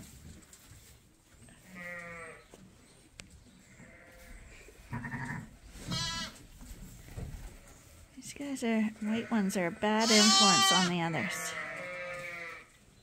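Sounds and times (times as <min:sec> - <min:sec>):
sheep bleating: 0:01.7 - 0:02.4, 0:04.9 - 0:06.4, 0:09.1 - 0:12.7.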